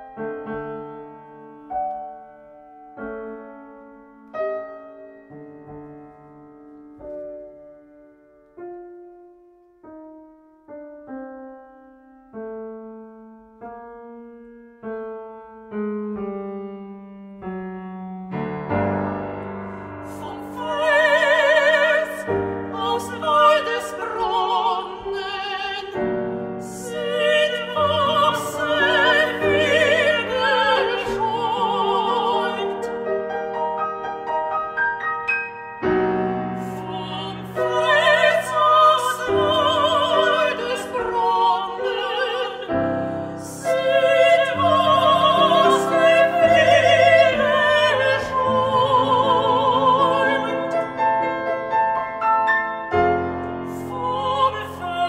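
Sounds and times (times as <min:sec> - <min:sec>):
piano notes: 0:00.0 - 0:55.0
women singing with vibrato: 0:20.0 - 0:33.0, 0:36.6 - 0:51.0, 0:53.7 - 0:55.0.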